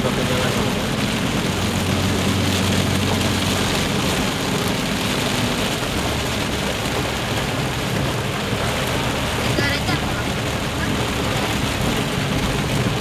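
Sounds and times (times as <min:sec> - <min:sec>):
car engine hum: 0:00.0 - 0:13.0.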